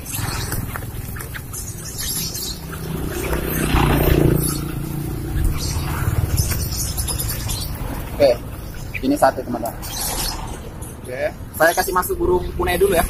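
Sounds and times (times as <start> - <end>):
birds fluttering against cage: 0.0 - 8.8.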